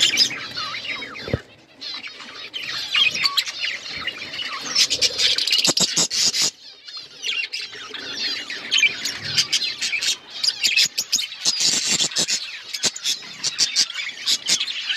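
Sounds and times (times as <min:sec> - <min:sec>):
budgerigars chattering and warbling: 0:00.0 - 0:14.9.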